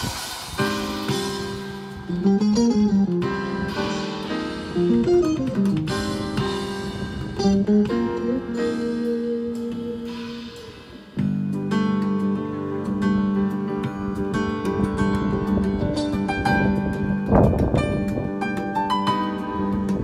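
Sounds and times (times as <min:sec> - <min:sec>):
held guitar notes: 0:00.6 - 0:20.0
plucked guitar notes: 0:01.0 - 0:20.0.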